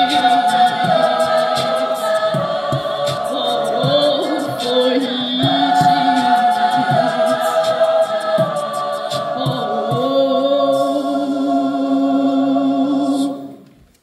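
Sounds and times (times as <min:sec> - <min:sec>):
choir singing a cappella: 0:00.0 - 0:13.6.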